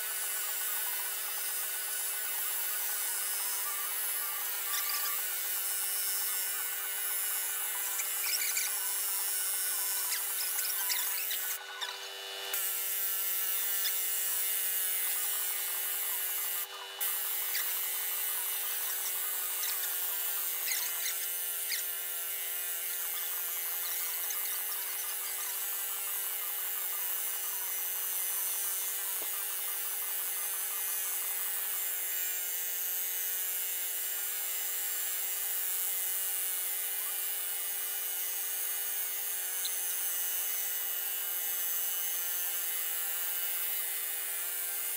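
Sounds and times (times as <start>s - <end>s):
pneumatic impact wrench hammering: 0.0s - 32.4s.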